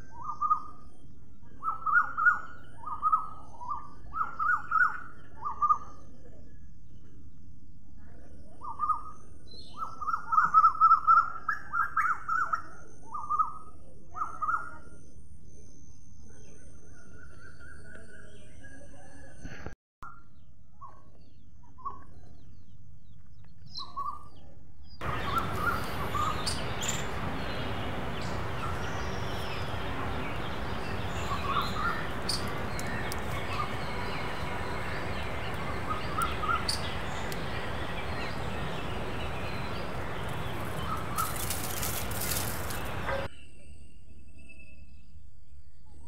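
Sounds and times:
steady hiss: 25.0s - 43.3s
bird chirps: 25.0s - 45.2s.

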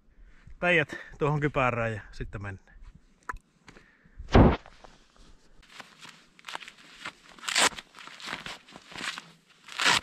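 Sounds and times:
heavy thump: 4.3s - 4.7s.

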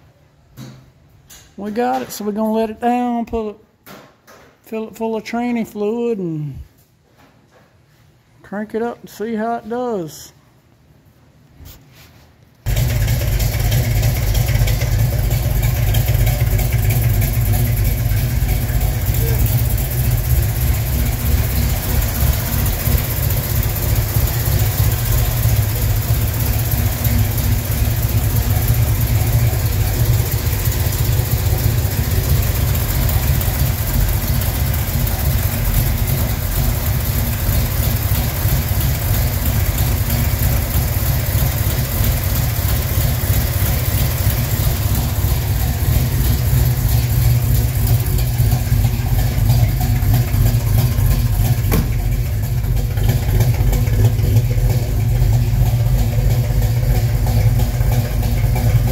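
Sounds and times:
car engine idling: 12.7s - 58.9s.

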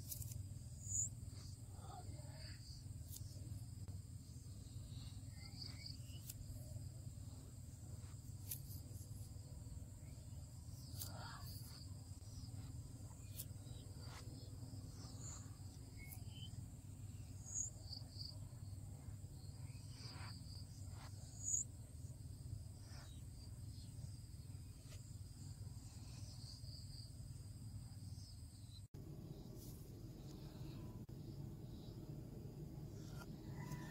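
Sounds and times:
insect chirring: 0.0s - 29.5s.

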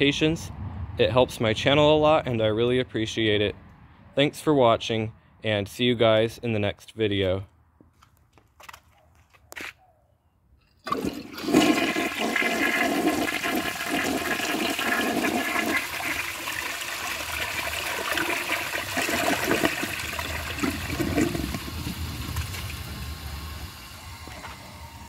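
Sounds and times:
toilet flushing: 10.8s - 24.9s
water running as bowl refills: 10.9s - 24.6s.

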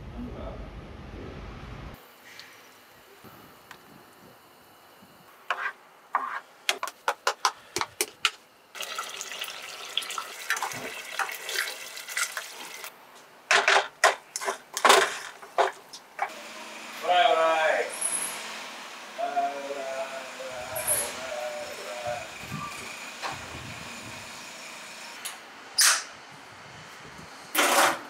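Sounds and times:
spatula scraping a saucepan: 5.5s - 6.4s.

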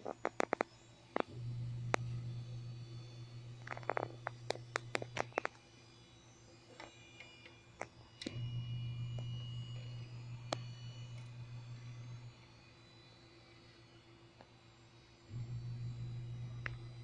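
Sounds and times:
computer drives humming: 0.0s - 17.0s
hard drive clicks: 3.5s - 5.6s, 16.0s - 17.0s.

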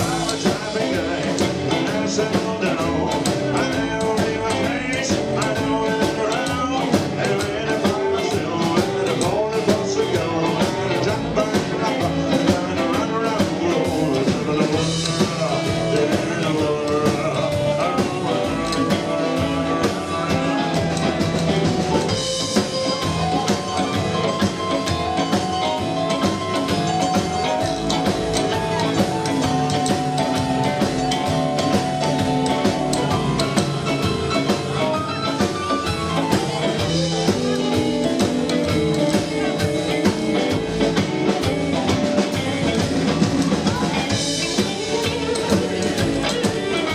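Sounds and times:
bass guitar: 0.0s - 46.9s
drum kit steady beat: 0.0s - 46.9s
electric guitar: 0.0s - 46.9s
keyboard: 0.0s - 46.9s.

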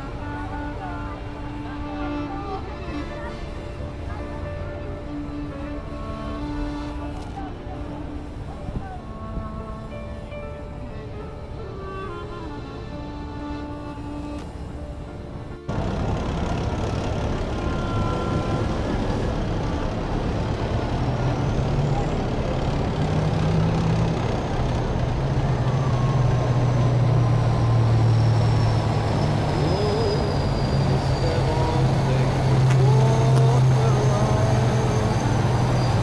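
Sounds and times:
heavy diesel engine drone: 0.0s - 36.0s
tank track noise: 15.7s - 36.0s
faint high whine: 25.6s - 36.0s.

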